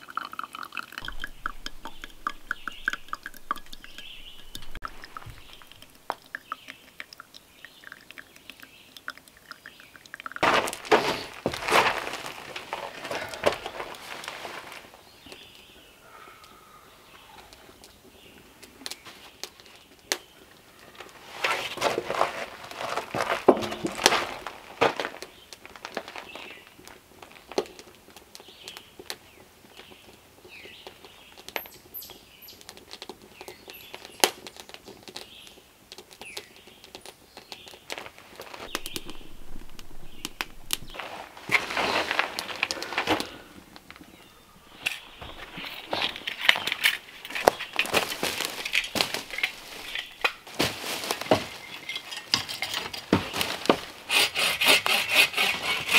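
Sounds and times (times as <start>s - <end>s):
wood fire crackling: 0.0s - 55.9s
bird chirps: 1.0s - 9.0s, 38.7s - 41.0s
footsteps on gravel: 10.4s - 15.0s, 21.2s - 26.6s, 37.9s - 43.6s, 44.7s - 51.8s
handling noises: 10.4s - 15.7s, 20.8s - 26.6s, 37.8s - 54.1s.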